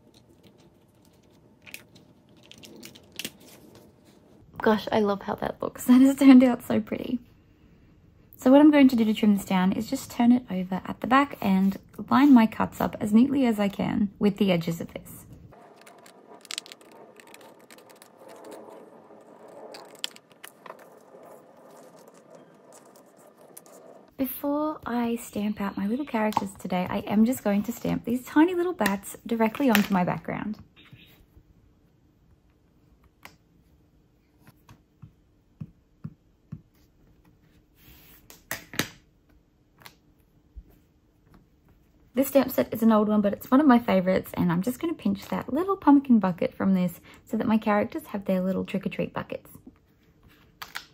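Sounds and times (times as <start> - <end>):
paper rustling: 15.6 - 24.1.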